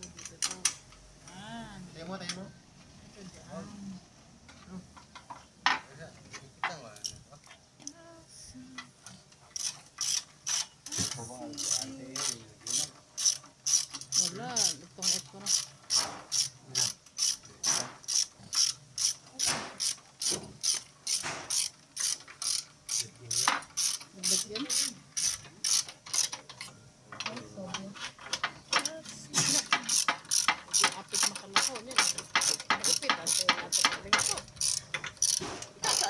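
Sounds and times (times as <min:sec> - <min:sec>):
ratchet wrench clicking: 0:09.5 - 0:26.7, 0:28.3 - 0:36.0.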